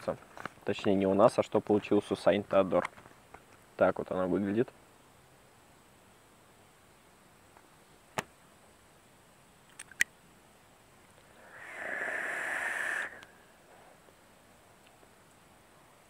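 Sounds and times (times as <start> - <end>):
sharp clicks of handled device: 9.7 - 10.1
airflow hiss of inhale: 11.1 - 14.2.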